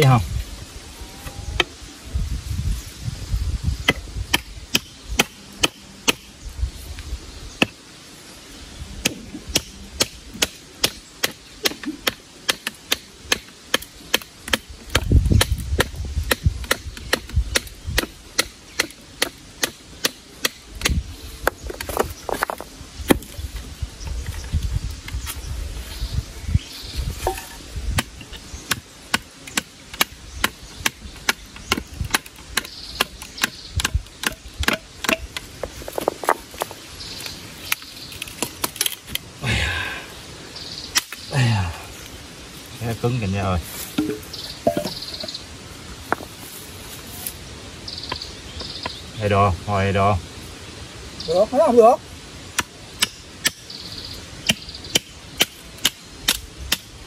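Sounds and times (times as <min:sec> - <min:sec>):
wood being chopped: 0:03.8 - 0:06.3, 0:09.0 - 0:23.4, 0:27.2 - 0:36.7, 0:43.9 - 0:45.1, 0:54.4 - 0:56.9.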